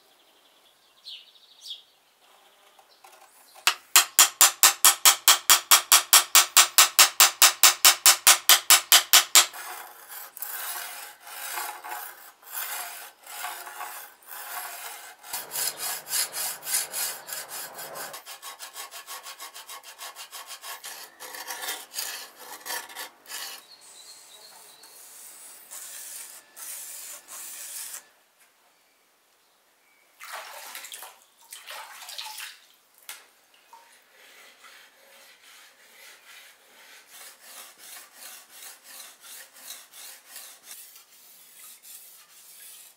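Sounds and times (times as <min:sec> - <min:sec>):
tool rasping along steel blade: 0:03.7 - 0:28.1, 0:34.1 - 0:42.9.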